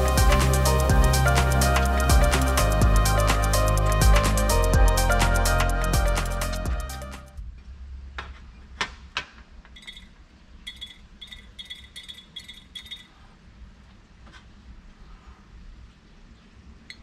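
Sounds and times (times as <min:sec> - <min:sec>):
short ringing clinks: 0:09.8 - 0:13.2.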